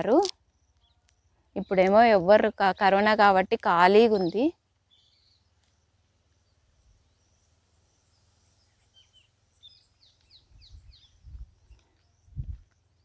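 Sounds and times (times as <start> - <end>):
small birds chirping: 0.0 - 13.0
wind buffeting microphone: 10.5 - 12.7.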